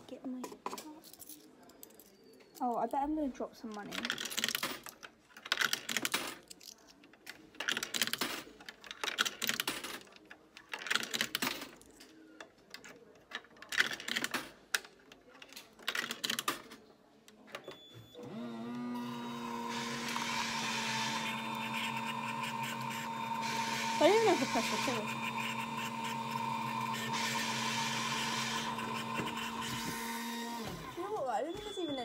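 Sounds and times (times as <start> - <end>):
coins clattering in coin slot: 3.8 - 12.0
vending machine beep: 17.6 - 18.4, 19.8 - 32.0
vending machine motor humming: 18.2 - 31.0.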